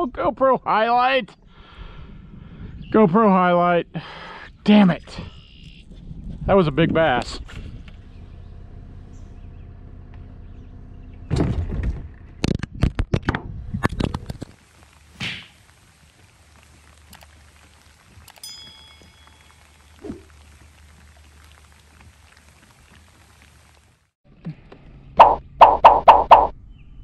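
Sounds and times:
light rain on water: 14.5s - 24.2s.

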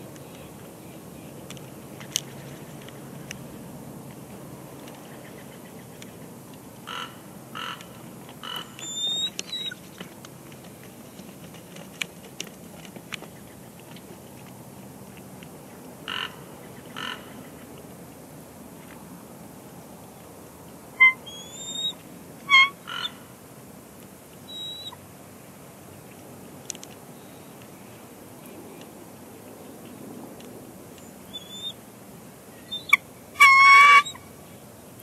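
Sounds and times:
steady outdoor hiss: 0.0s - 35.0s
eagle chirps: 8.8s - 9.8s, 21.0s - 23.1s, 24.5s - 25.0s, 31.3s - 31.8s, 32.6s - 34.2s.

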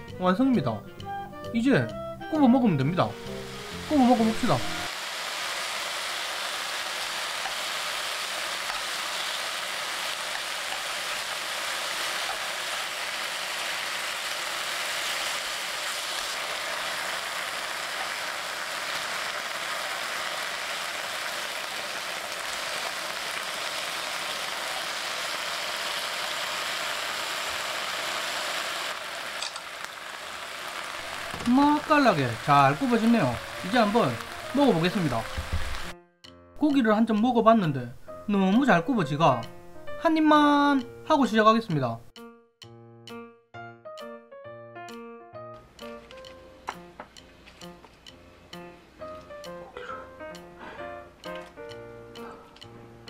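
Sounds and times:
meat sizzling in a frying pan: 3.2s - 35.9s.

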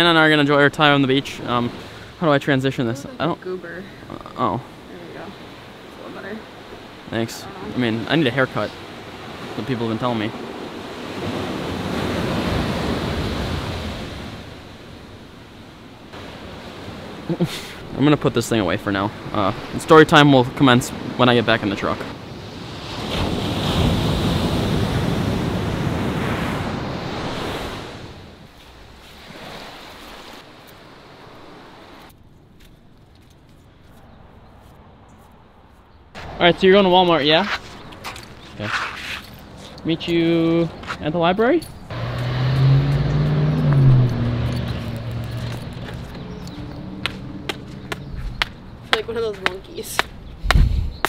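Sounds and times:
waves washing on a sandy beach: 0.0s - 32.1s
surf washing on pebbly beach: 4.7s - 15.4s.

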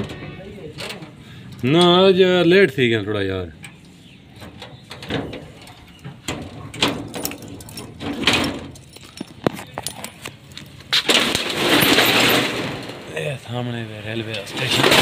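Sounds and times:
steel shutter scraping rattle: 0.0s - 2.5s, 3.5s - 10.3s, 10.9s - 15.0s
padlock clicking and clanking: 4.5s - 10.8s.

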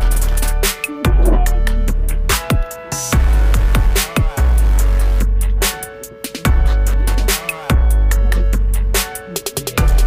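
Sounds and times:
electronic music with heavy bass: 0.0s - 10.0s.

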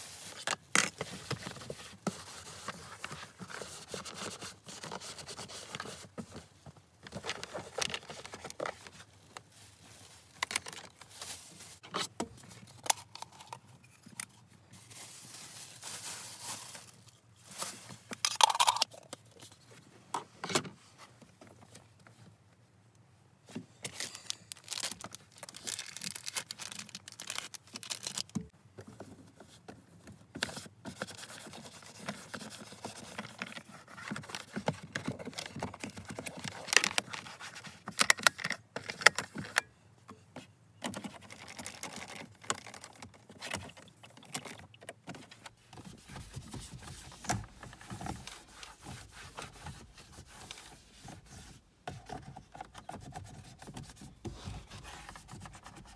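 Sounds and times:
rustling: 0.0s - 18.7s.

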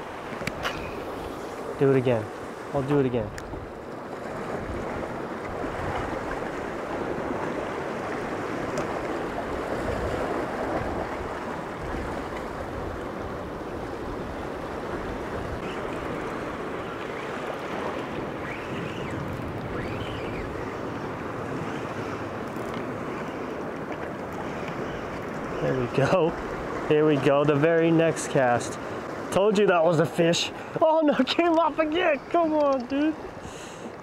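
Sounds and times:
ocean waves: 0.0s - 34.0s
wind: 0.0s - 34.0s.

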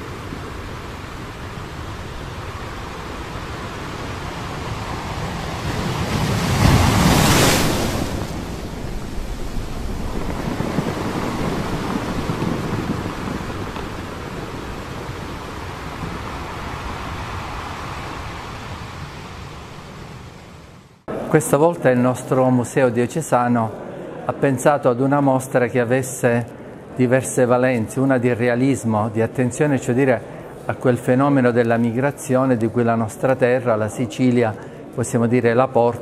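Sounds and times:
sea waves washing in: 0.0s - 21.1s.

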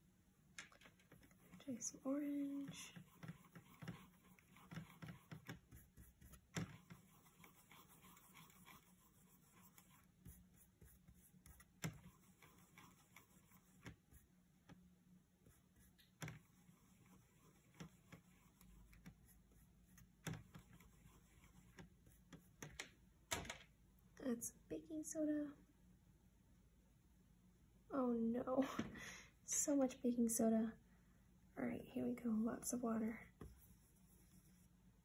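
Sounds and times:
paintbrush tapping and rubbing: 0.7s - 14.8s, 15.4s - 23.0s.

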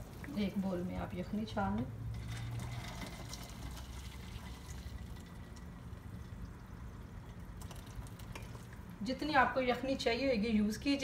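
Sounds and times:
broth pouring through strainer: 2.1s - 8.8s.

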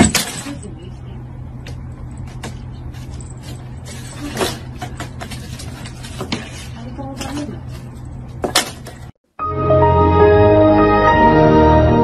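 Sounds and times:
low steady hum: 0.0s - 9.1s.

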